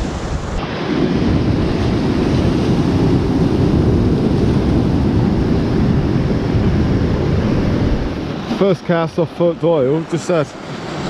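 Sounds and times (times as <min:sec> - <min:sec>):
wind noise on microphone: 0:00.0 - 0:08.8
surf washing over rocks: 0:00.0 - 0:11.0.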